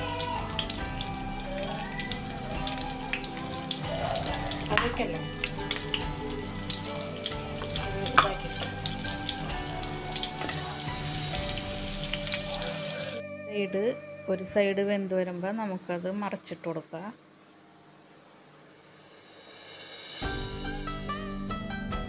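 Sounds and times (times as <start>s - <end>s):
fish frying in hot oil: 0.0s - 13.2s
oil crackles and pops: 0.0s - 13.2s.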